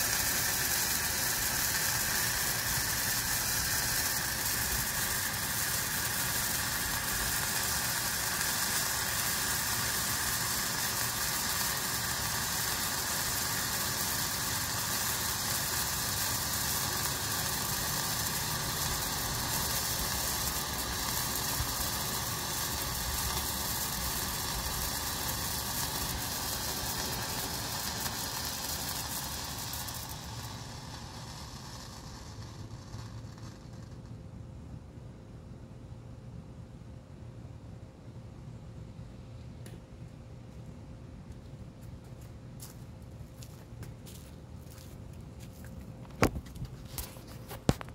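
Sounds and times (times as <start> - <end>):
flare burning with loud hiss: 0.0 - 35.1, 46.0 - 47.9.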